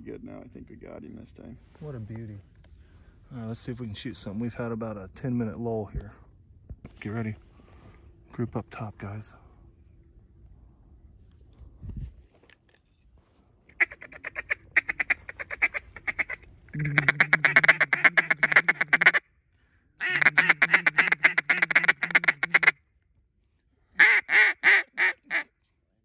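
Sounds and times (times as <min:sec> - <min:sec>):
duck call feeding chatter: 0:13.7 - 0:19.2, 0:20.0 - 0:22.8, 0:24.0 - 0:25.5
duck call quacks: 0:13.7 - 0:19.2, 0:20.0 - 0:22.8, 0:24.0 - 0:25.5.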